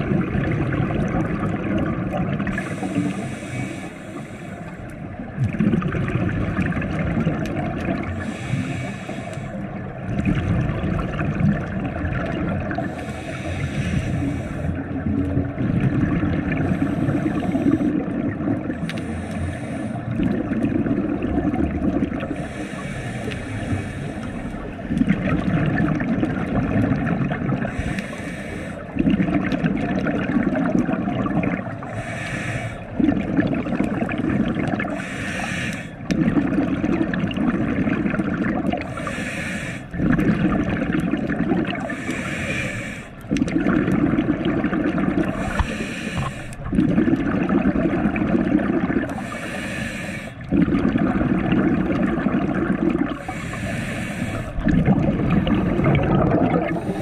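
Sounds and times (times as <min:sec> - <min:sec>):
gurgling exhaled bubbles: 0:00.0 - 0:03.9, 0:04.8 - 0:57.0
regulator hissing inhale: 0:02.5 - 0:04.9, 0:08.1 - 0:09.8, 0:12.7 - 0:15.0, 0:16.6 - 0:18.1, 0:18.8 - 0:20.2, 0:22.3 - 0:24.8, 0:27.6 - 0:29.0, 0:31.8 - 0:33.0, 0:34.9 - 0:36.1, 0:38.8 - 0:40.0, 0:41.8 - 0:43.3, 0:45.3 - 0:46.7, 0:49.1 - 0:50.5, 0:53.1 - 0:54.7, 0:56.6 - 0:57.0.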